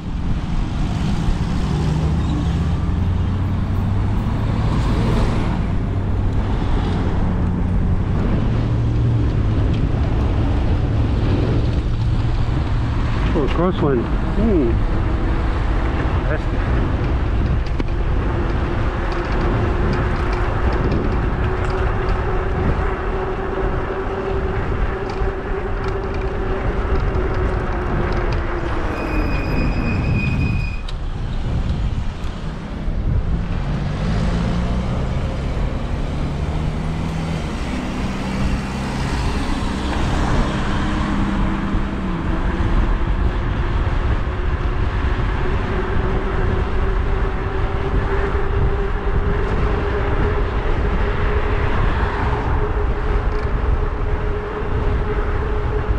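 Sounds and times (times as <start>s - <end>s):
loud wind: 0.0s - 55.9s
high squeal: 28.8s - 30.9s.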